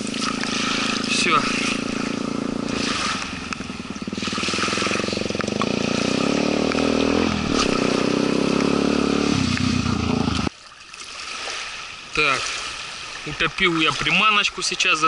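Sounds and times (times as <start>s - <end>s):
engine running: 0.0s - 10.5s.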